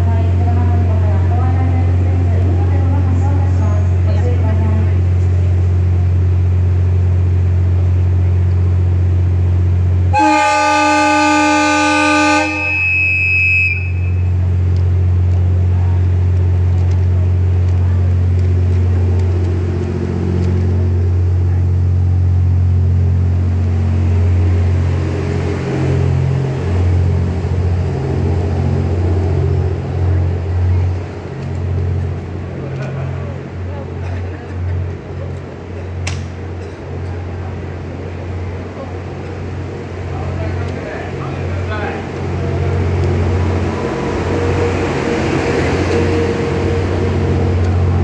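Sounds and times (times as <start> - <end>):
train low hum: 0.0 - 48.0
train rumbling past: 0.0 - 48.0
loud multi-tone train horn: 10.1 - 14.4.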